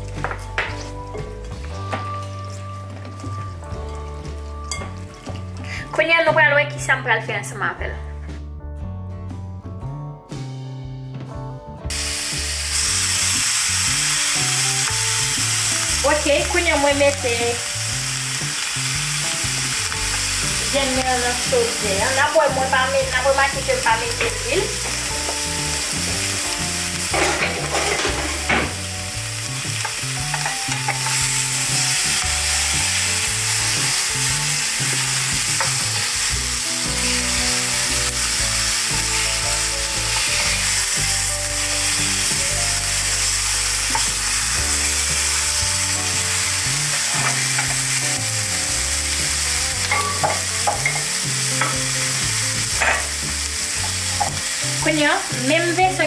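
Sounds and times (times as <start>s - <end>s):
chicken sizzling in a pan: 11.9s - 56.0s.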